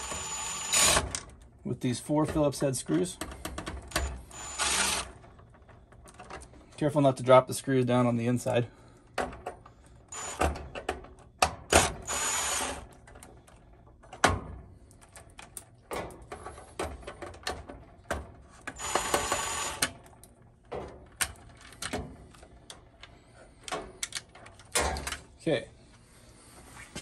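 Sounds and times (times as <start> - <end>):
cordless drill whining: 0.0 - 1.2, 3.9 - 5.1, 10.1 - 10.6, 11.8 - 12.8, 18.8 - 19.9.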